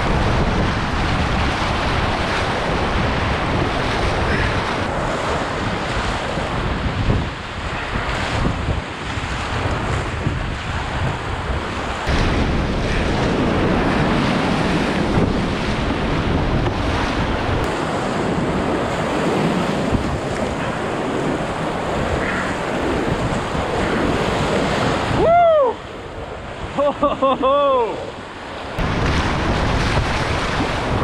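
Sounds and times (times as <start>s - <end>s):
whitewater rapids rushing: 0.0s - 10.2s
wind buffeting microphone: 0.0s - 27.1s, 27.8s - 31.0s.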